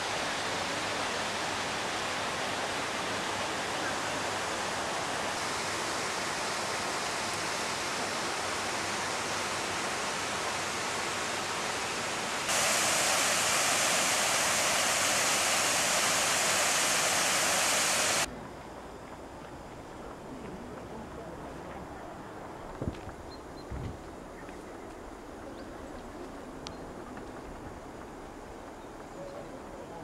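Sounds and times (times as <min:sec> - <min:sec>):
water rushing: 0:00.0 - 0:18.3.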